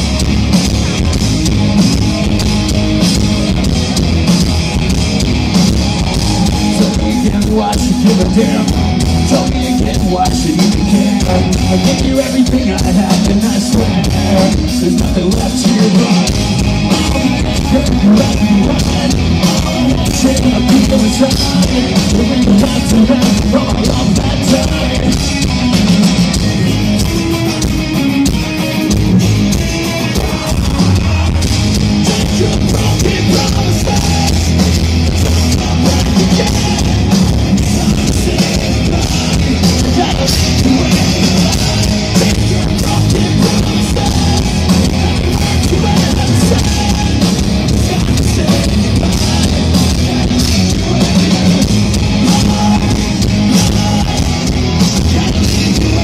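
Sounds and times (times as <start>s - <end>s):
bass guitar: 0.0s - 56.0s
distorted electric guitars: 0.0s - 56.0s
drum kit: 0.0s - 56.0s.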